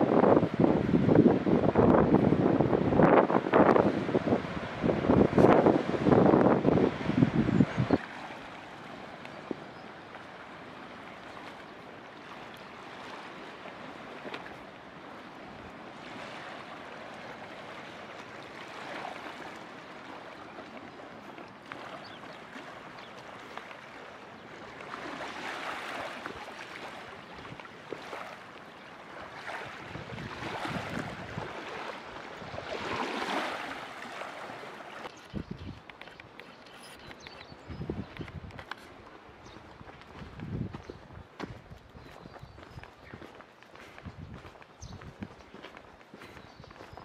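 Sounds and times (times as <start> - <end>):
waves lapping on pebble shore: 0.0 - 35.2.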